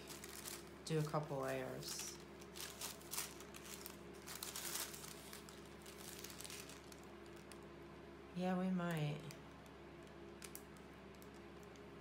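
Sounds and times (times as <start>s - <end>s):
thin paper rustling: 0.0s - 7.6s.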